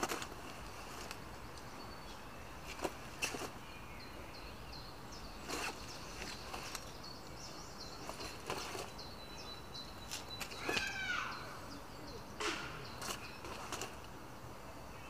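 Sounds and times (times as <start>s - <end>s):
songbirds chirping: 0.0s - 15.0s
jacket rustling swishes: 5.4s - 6.9s, 8.0s - 9.0s.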